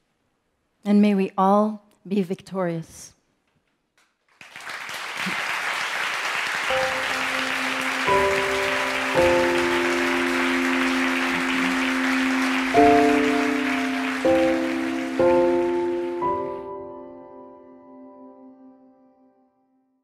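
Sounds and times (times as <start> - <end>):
slow held chords: 6.7 - 19.3.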